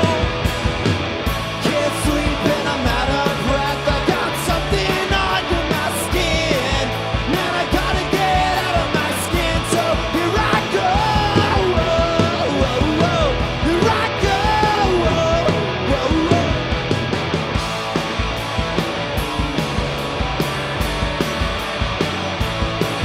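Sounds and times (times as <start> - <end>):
man singing: 0.0 - 0.4, 1.6 - 16.7
rock band playing: 0.0 - 23.0.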